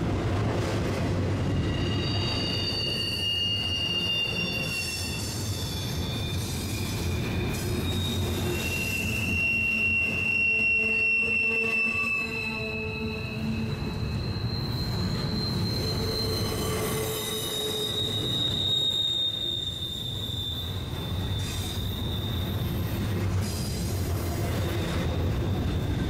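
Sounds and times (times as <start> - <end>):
train cars rumbling: 0.0 - 26.0
train wheels squealing: 1.1 - 26.0.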